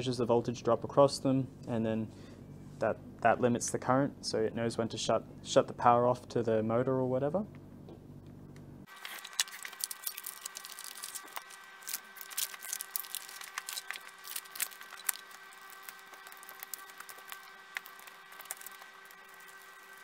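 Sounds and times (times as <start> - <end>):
plastic wrapping crackling: 8.9 - 20.0.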